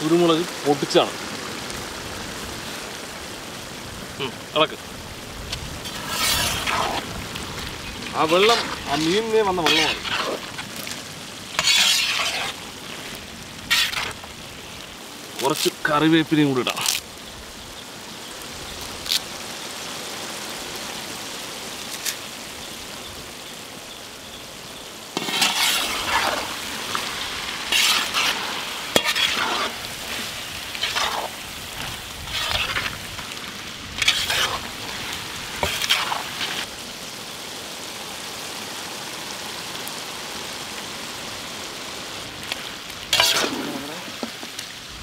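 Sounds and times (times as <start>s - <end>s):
fish sizzling in hot oil: 0.0s - 45.0s
spoon scraping a pan: 5.8s - 7.1s, 7.8s - 14.2s, 25.2s - 33.0s, 34.0s - 36.6s, 43.1s - 44.5s.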